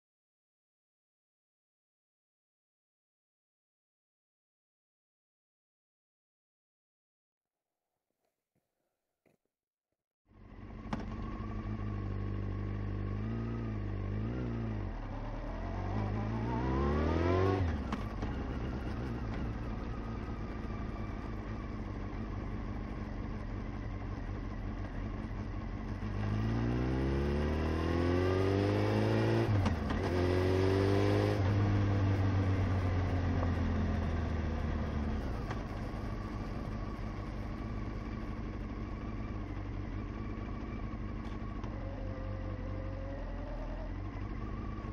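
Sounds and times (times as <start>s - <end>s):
motorcycle engine accelerating: 10.3s - 44.9s
wind and road noise: 10.4s - 44.9s.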